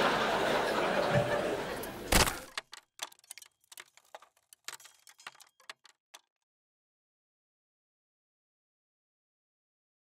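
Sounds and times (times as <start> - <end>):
audience laughter: 0.0 - 2.1
sharp crack: 2.1 - 6.2
small cracks and clicks: 2.1 - 6.4.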